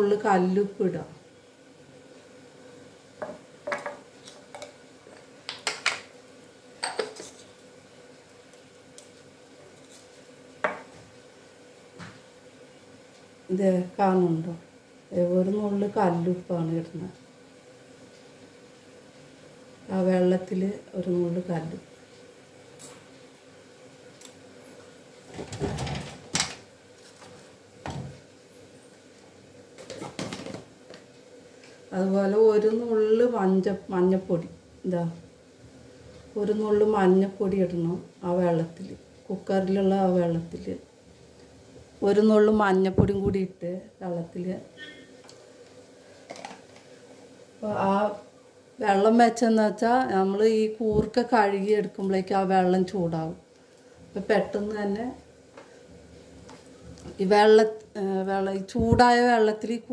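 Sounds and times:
faint steady hum: 0:00.0 - 0:59.9
kitchen utensils clinking: 0:06.8 - 0:07.3.

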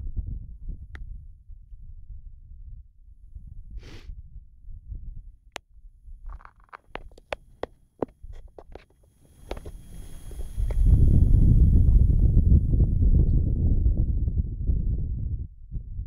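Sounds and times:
wind rumbling on microphone: 0:00.0 - 0:16.0
short hiss: 0:03.8 - 0:04.0, 0:09.0 - 0:11.6
small clicks and knocks: 0:06.3 - 0:10.8.

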